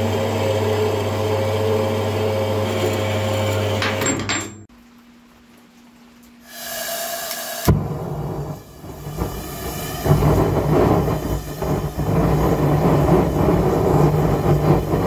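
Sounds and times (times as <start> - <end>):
gas hissing: 6.4 - 15.0
burner lighting with loud pop: 7.6 - 15.0.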